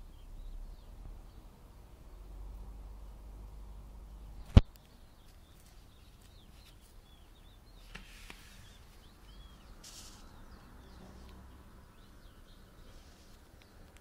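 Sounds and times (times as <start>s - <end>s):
sparrow fledgling chirps: 4.4s - 7.9s, 8.5s - 13.8s.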